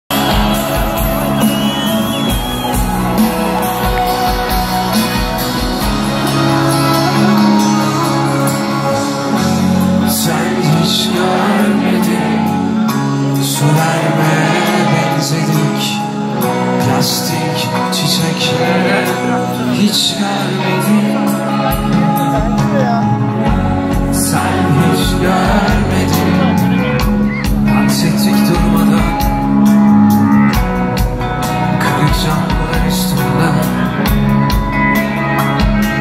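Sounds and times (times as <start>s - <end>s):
crowd voices and shouts: 0.0s - 36.0s
live pop-rock band: 0.1s - 36.0s.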